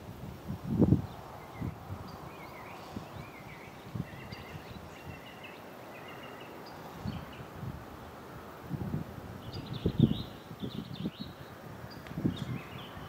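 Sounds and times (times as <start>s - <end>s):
wind thumps on microphone: 0.0s - 5.2s, 8.7s - 11.2s, 12.0s - 13.0s
outdoor background noise: 0.0s - 13.0s
birds chirping: 0.9s - 8.3s, 9.4s - 13.0s.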